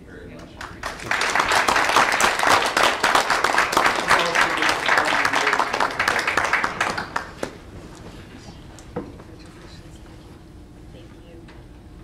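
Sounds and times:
people applauding: 0.4s - 7.6s.

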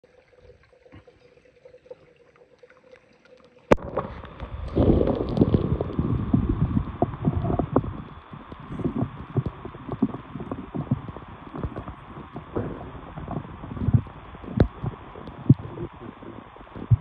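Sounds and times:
faint stream water: 0.0s - 17.0s
muffled underwater gurgling: 0.0s - 17.0s
small underwater clicks: 0.1s - 17.0s.

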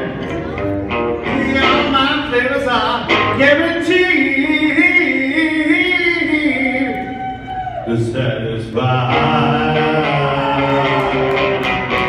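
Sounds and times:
electric guitar: 0.0s - 12.0s
man singing: 1.2s - 7.1s, 7.8s - 11.5s.

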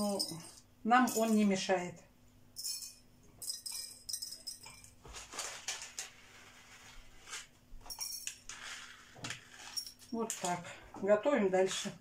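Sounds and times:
peppercorns rattling in glass jars: 0.0s - 1.5s, 2.6s - 6.0s, 7.8s - 10.6s.

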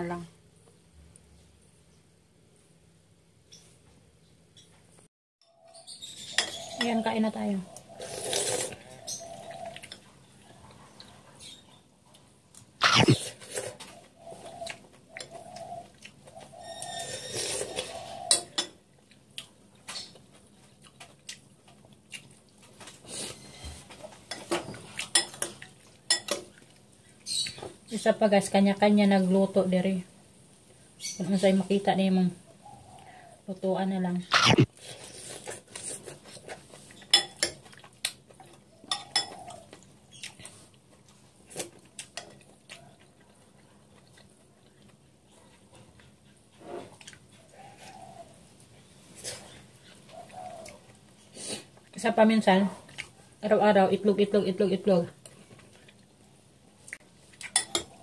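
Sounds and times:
cutlery clinking against bowl: 24.3s - 26.5s, 37.0s - 37.8s, 38.9s - 39.5s, 57.4s - 58.0s.

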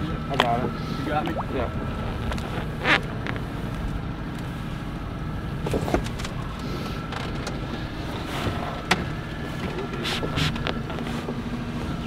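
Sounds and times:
boat motor idling: 0.0s - 12.0s
light knocks of boats: 5.6s - 12.0s.

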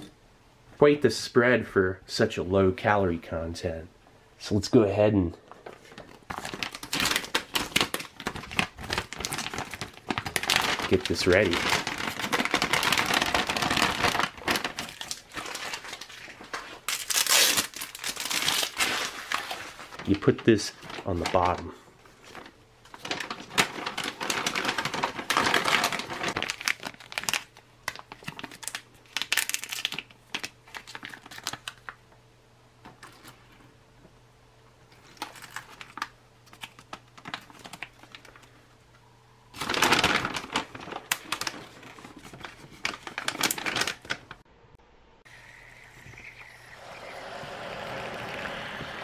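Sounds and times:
plastic packaging crinkling: 5.5s - 32.0s, 34.9s - 38.6s, 39.5s - 44.4s.

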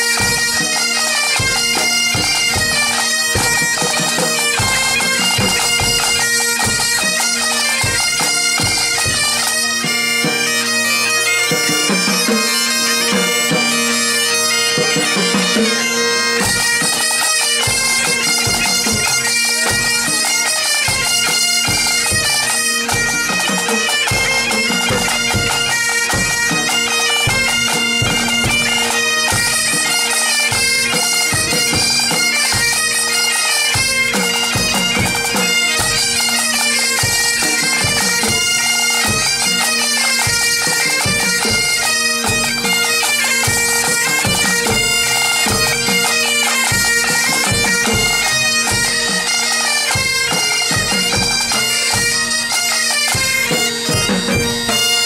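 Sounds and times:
bagpipe drones: 0.0s - 55.0s
bombardes and bagpipes melody: 0.0s - 55.0s.

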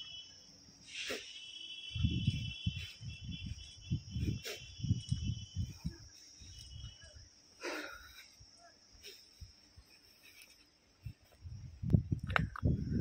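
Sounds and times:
insects droning: 0.0s - 13.0s
wind buffeting microphone: 1.9s - 7.2s, 11.0s - 13.0s.

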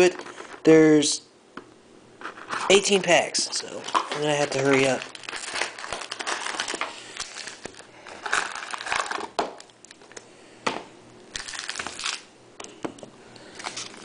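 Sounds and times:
foil packs crinkling: 2.2s - 10.0s, 11.3s - 12.3s, 13.4s - 14.0s.

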